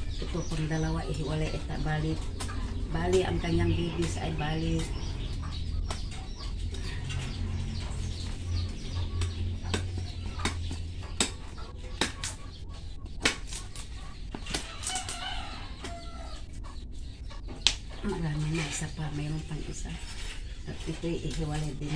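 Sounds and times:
roots and soil rustling: 0.0 - 11.2, 17.6 - 21.9
roots snapping: 13.2 - 16.0.

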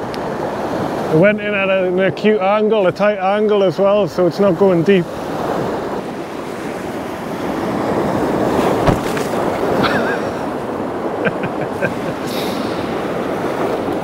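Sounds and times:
strong wind: 0.0 - 14.0
surf breaking on rocky shore: 0.0 - 14.0
dull thump: 8.6 - 9.8.

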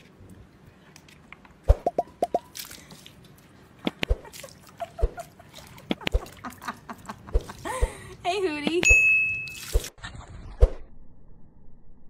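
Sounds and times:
water dripping and plopping: 1.8 - 6.6, 9.4 - 9.9.

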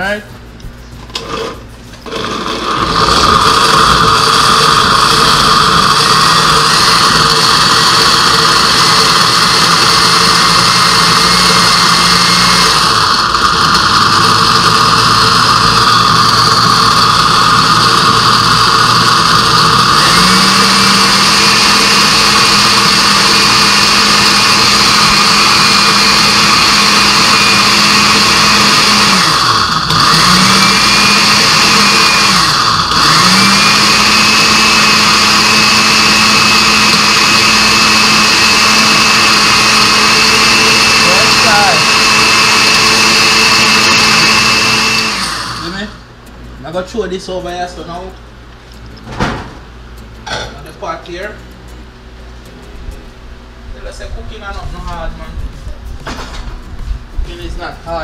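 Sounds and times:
blender grinding: 1.1 - 46.1.

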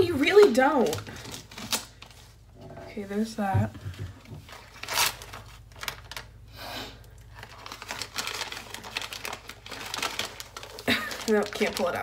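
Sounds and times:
wrapping paper tearing: 0.0 - 2.4, 4.5 - 12.0
gift wrapping paper crinkling: 0.0 - 2.5, 4.4 - 6.5, 7.1 - 12.0.

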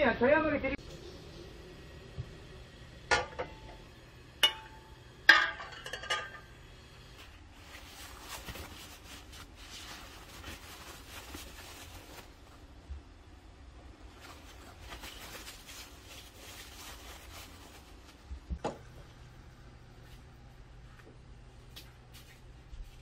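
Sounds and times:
glass jars clinking on pot: 4.4 - 6.5
paper towel rustling: 7.2 - 12.8, 14.0 - 18.6.

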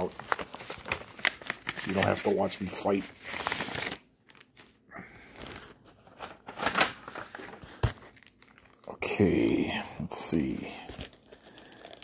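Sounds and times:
paper envelope rustling: 0.0 - 8.9.

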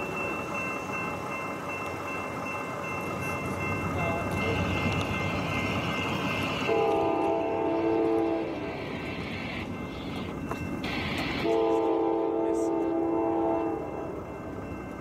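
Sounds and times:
freight train rumble: 0.0 - 15.0
locomotive air horn: 6.7 - 8.6, 11.4 - 13.8.

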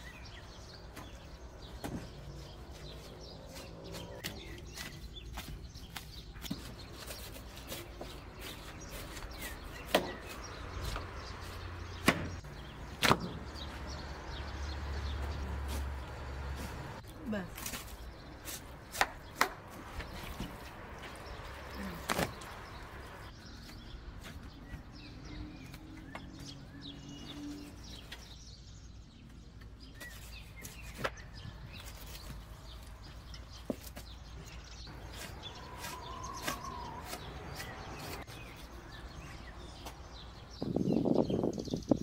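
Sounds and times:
birds chirping: 0.0 - 42.0.

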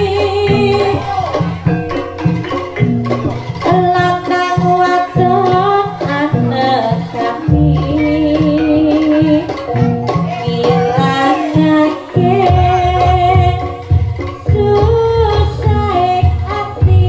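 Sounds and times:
drums beating: 0.0 - 17.0
held melodic line: 0.0 - 17.0.

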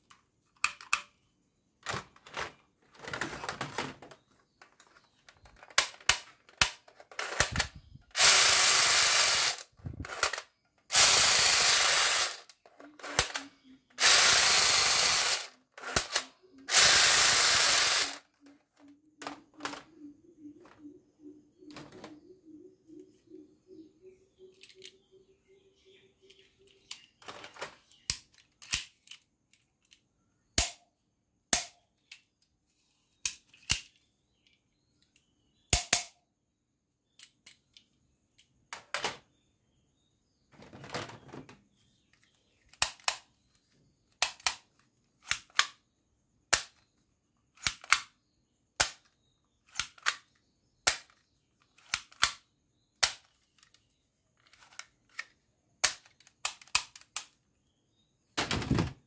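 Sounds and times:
plastic rattle: 1.8 - 20.0, 26.3 - 30.1, 53.0 - 57.4
toy pistol trigger clicking: 5.8 - 18.3, 28.1 - 29.2, 30.6 - 30.8, 31.5 - 32.2, 35.2 - 36.2, 42.7 - 43.2, 45.2 - 45.8, 47.6 - 48.1, 49.7 - 50.3, 51.8 - 53.7.

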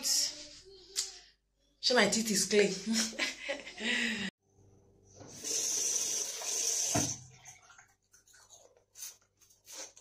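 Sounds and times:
tap running into sink: 6.7 - 7.3.

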